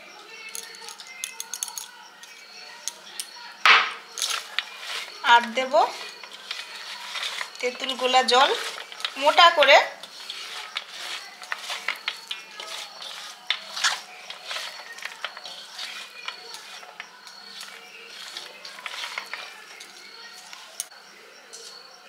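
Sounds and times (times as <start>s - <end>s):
food squelching by hand: 4.0s - 21.0s.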